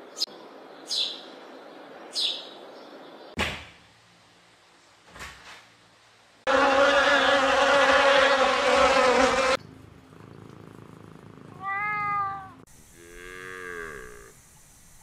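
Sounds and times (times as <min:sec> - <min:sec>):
cow mooing: 0:06.5 - 0:09.6, 0:13.0 - 0:14.4
cat meowing: 0:11.5 - 0:12.6
second cat meowing: 0:11.5 - 0:12.6.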